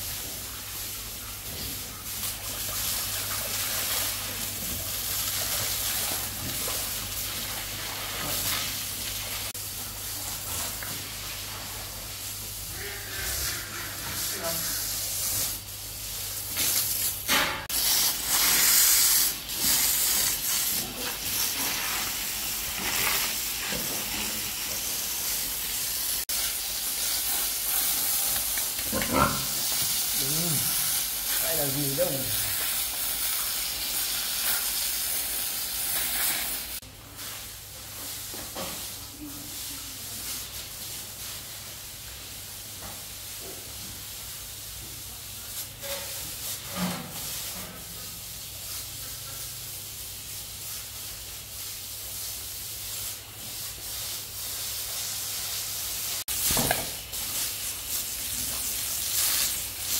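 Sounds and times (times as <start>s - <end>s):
steady hissing: 0.0s - 37.4s.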